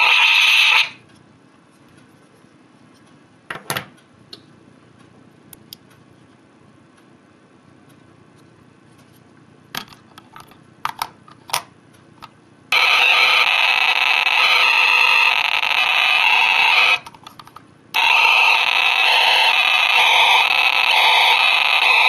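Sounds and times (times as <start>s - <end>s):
loud noisy electronic tone: 0.0s - 1.0s, 12.7s - 17.0s, 18.0s - 22.0s.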